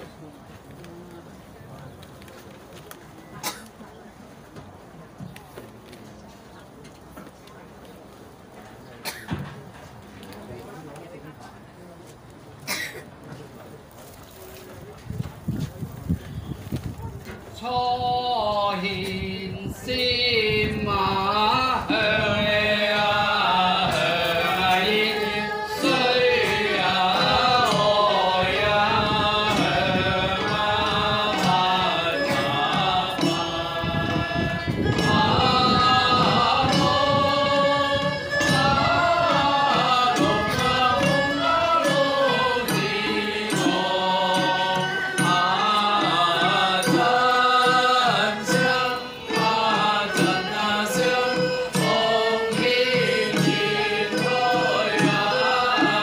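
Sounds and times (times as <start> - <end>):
ritual hymn chanting: 17.5 - 56.0
instrumental music: 21.1 - 56.0.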